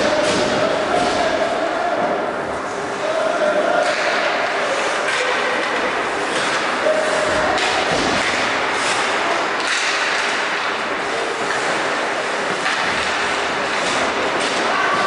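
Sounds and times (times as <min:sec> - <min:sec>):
echoing arena noise: 0:00.0 - 0:15.0
thud: 0:07.3 - 0:08.6.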